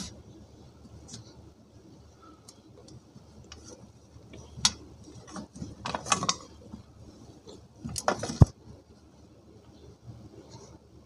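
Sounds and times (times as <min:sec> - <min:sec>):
dry clay snapping: 0:04.3 - 0:06.5.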